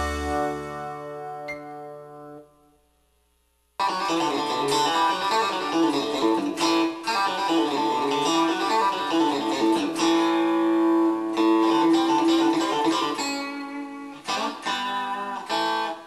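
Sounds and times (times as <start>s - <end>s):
electric guitar country picking: 0.0s - 2.4s, 3.8s - 16.0s.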